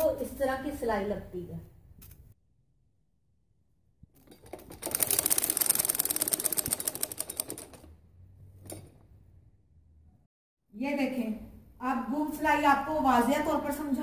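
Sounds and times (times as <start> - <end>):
sewing machine stitching: 4.2 - 8.0.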